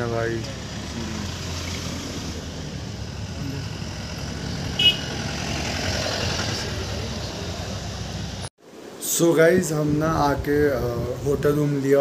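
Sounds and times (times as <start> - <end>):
car driving past: 0.4 - 8.5
car horn toot: 4.8 - 5.2.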